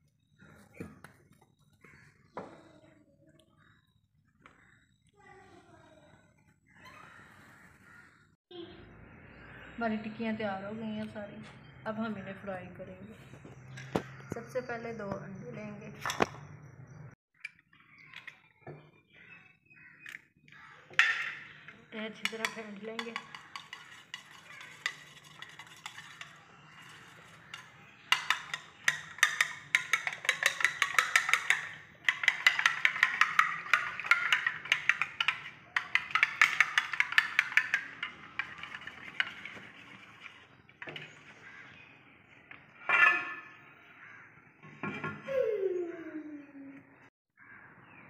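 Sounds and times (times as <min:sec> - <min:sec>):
spoon beating eggs on plate: 0:20.9 - 0:41.5.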